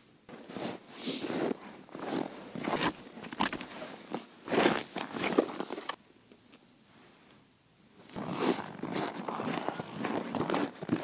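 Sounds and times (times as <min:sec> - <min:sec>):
boots crunching in snow: 0:00.3 - 0:06.0, 0:08.2 - 0:11.0.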